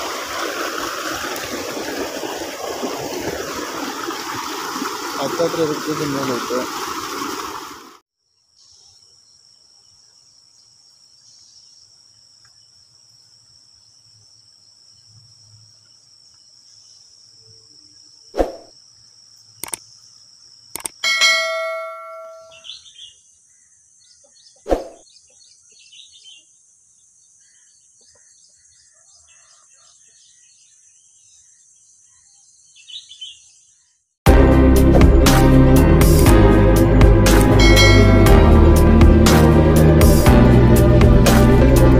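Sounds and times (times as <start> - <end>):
sharp clicks: 19.6 - 19.8, 20.8 - 21.0
bell notification ding: 21.0 - 22.6, 37.6 - 38.4.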